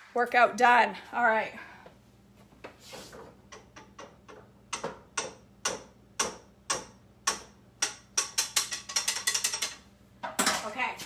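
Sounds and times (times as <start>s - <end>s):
metal utensil tapping a pot: 3.5s - 9.8s.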